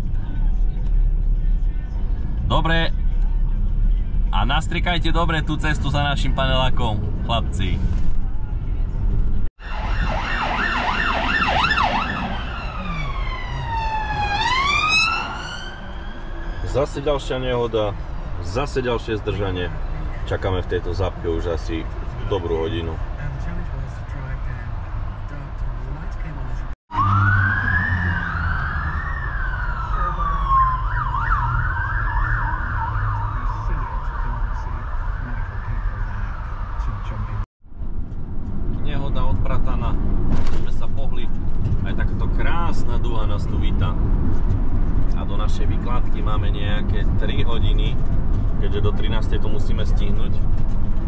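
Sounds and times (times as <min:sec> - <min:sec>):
road noise: 0:00.0 - 0:51.0
emergency vehicle siren: 0:09.6 - 0:17.4, 0:26.9 - 0:37.4.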